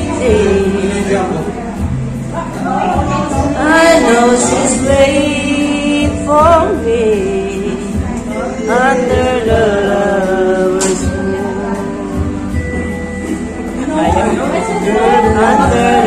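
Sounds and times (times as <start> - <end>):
man singing karaoke: 0.0 - 1.8, 3.1 - 12.0, 13.9 - 16.0
backing track music: 0.0 - 16.0.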